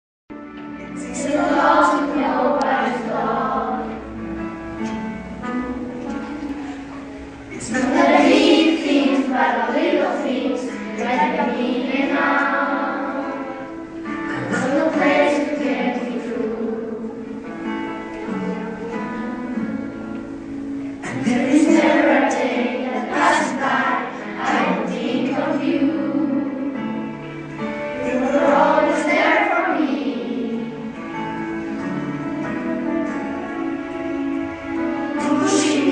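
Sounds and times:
instrumental accompaniment: 0:00.3 - 0:35.9
boys singing in unison: 0:01.0 - 0:04.1, 0:07.5 - 0:17.4, 0:21.0 - 0:27.0, 0:28.0 - 0:31.0, 0:35.1 - 0:35.9.

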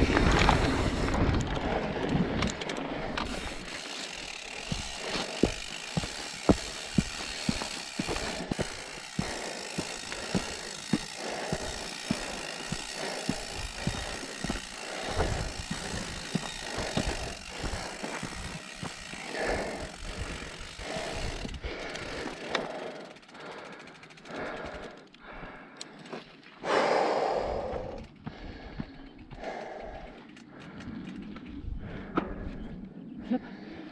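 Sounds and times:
bike knocking and rattling: 0:00.0 - 0:25.4
bike tyres on dirt: 0:00.0 - 0:32.8
person breathing loudly: 0:00.8 - 0:33.9.

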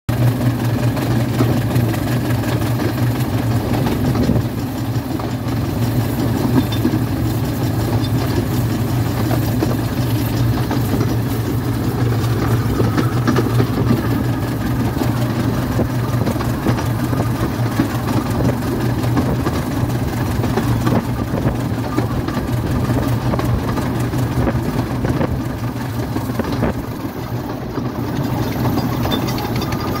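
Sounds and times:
steam locomotive exhaust: 0:00.1 - 0:30.0
wheels running on rails: 0:00.1 - 0:30.0.

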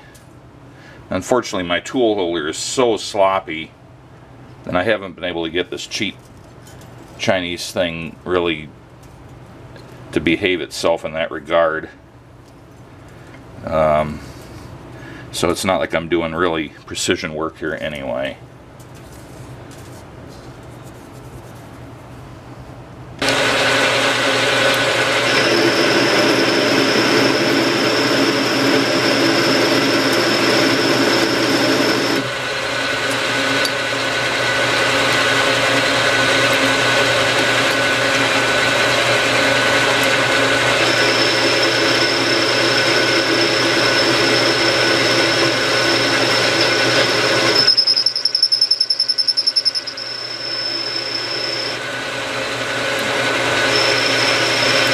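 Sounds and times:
metal lathe running: 0:23.2 - 0:54.9
thin high whine: 0:25.1 - 0:32.3, 0:40.7 - 0:51.9, 0:53.5 - 0:54.9.

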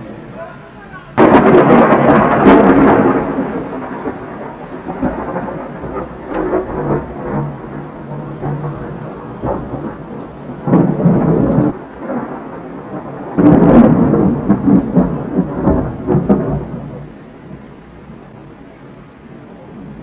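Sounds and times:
thunder crack and rumble: 0:01.1 - 0:20.0.

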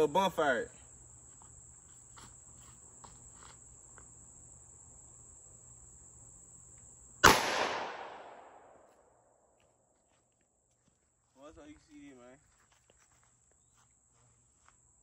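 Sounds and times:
crickets chirping: 0:00.0 - 0:15.0
gunshot with echo: 0:07.2 - 0:08.8.

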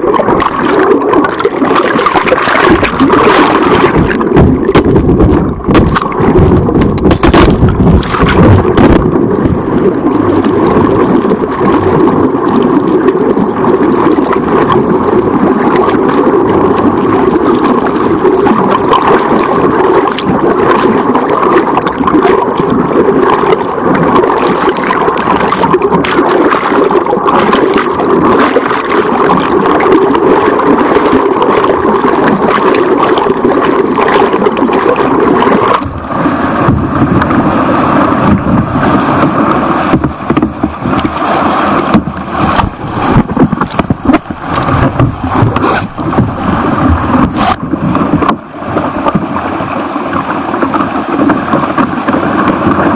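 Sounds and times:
knocks and buffeting: 0:03.8 - 0:09.8, 0:35.8 - 0:41.2, 0:41.8 - 0:49.3.

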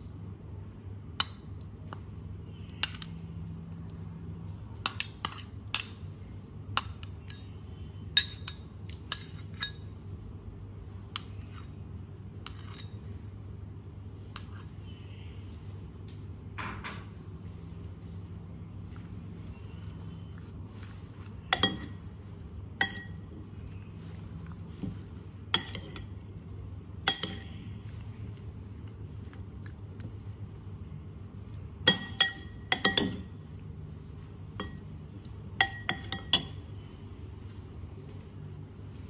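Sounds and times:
metal spoon clinking ceramic bowl: 0:21.5 - 0:22.1, 0:22.8 - 0:23.6, 0:25.5 - 0:26.2, 0:27.0 - 0:27.6, 0:31.8 - 0:33.3, 0:34.6 - 0:34.9, 0:35.5 - 0:36.6.

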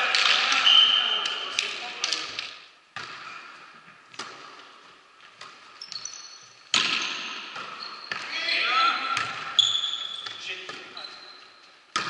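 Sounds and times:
shoes squeaking on court: 0:04.2 - 0:12.0
volleyball being struck: 0:06.7 - 0:08.3.

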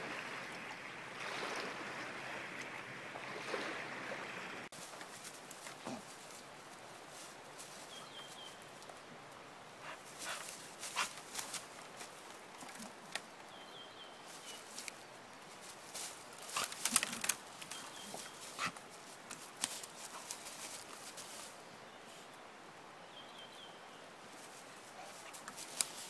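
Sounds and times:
dog rustling through dry leaves: 0:09.8 - 0:12.2, 0:15.5 - 0:21.6
twigs snapping: 0:10.2 - 0:13.3, 0:15.9 - 0:21.4, 0:25.3 - 0:26.0.

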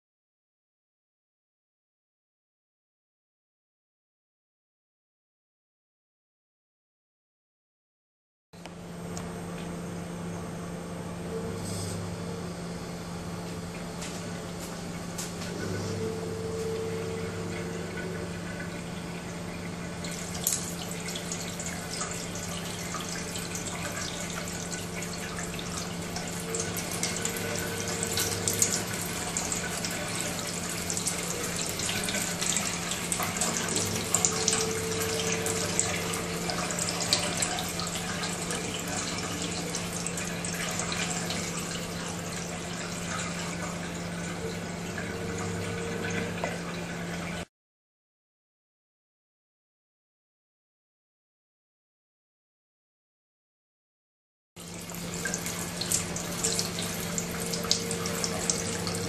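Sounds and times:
low hum: 0:08.6 - 0:42.5
tap water splashing into sink: 0:20.0 - 0:41.6.

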